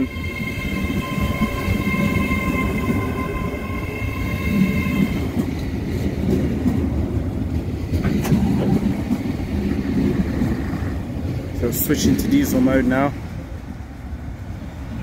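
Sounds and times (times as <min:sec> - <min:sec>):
steady high whine: 0:00.0 - 0:05.6
train rumbling past: 0:00.0 - 0:15.0.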